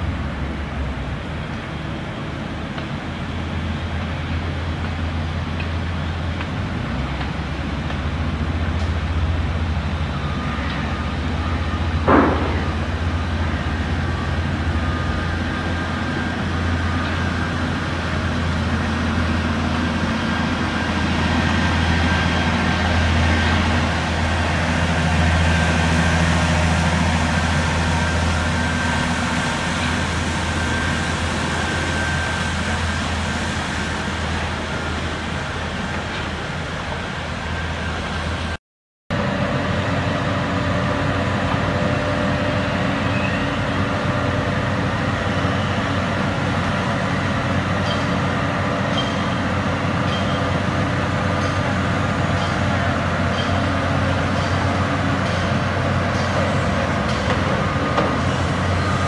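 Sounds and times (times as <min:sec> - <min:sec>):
heavy machinery engines rumbling: 0:00.0 - 0:59.0
traffic: 0:00.0 - 0:59.0
sharp knock: 0:12.1 - 0:12.8.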